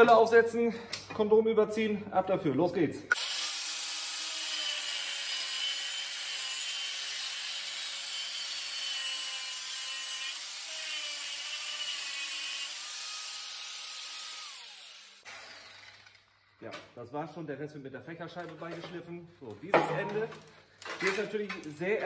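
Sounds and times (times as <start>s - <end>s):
angle grinder cutting metal pipe: 3.1s - 16.2s
grinder winding down: 3.1s - 16.3s.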